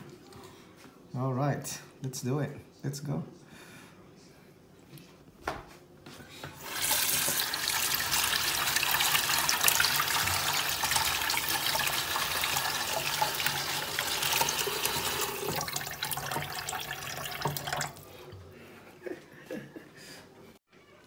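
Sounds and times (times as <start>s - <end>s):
faucet water running into sink: 6.6s - 18.1s.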